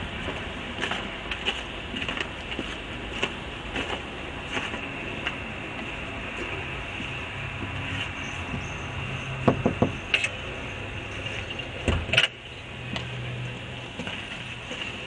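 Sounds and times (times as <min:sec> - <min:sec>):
steady low hum: 0:00.0 - 0:15.0
knock: 0:09.5 - 0:10.0.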